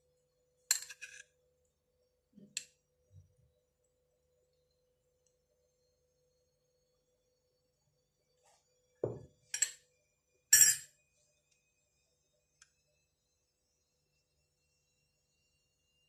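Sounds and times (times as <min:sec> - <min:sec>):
glass bowl set down: 0:09.0 - 0:09.7
metal spoon clinking glass: 0:09.5 - 0:09.8, 0:10.6 - 0:10.9.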